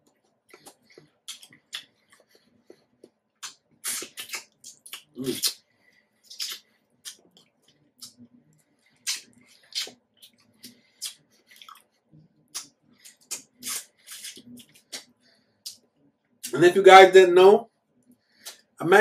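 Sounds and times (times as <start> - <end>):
wet chewing of juicy fruit: 0.5 - 5.6, 6.3 - 8.2, 8.9 - 15.8.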